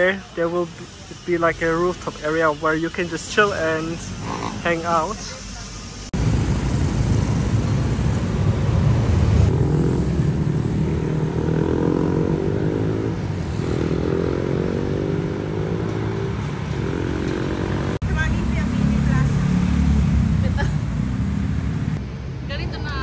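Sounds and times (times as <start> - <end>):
street traffic: 0.0 - 23.0
motorcycle engine passing: 9.1 - 22.0.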